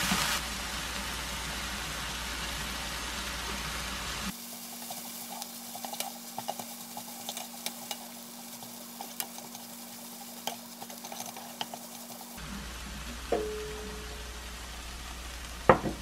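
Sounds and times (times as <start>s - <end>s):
food sizzling in a pan: 0.0s - 16.0s
spatula scraping a pan: 4.4s - 12.4s.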